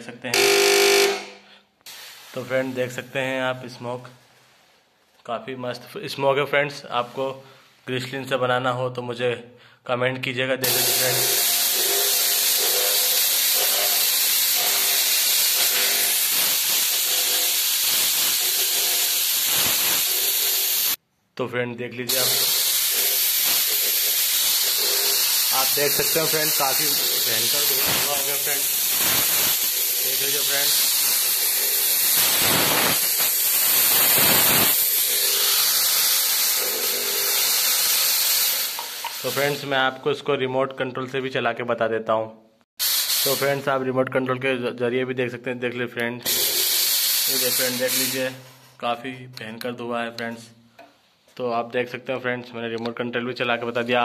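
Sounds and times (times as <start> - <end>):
fog machine hissing: 10.6 - 21.0, 22.1 - 39.7, 42.8 - 43.8, 46.3 - 48.5.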